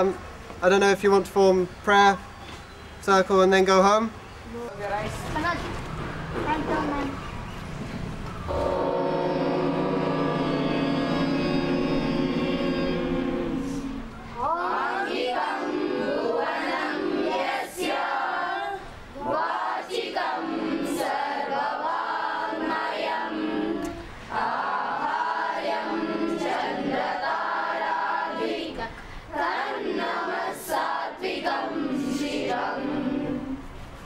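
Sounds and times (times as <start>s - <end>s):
girls singing together: 8.5s - 33.7s.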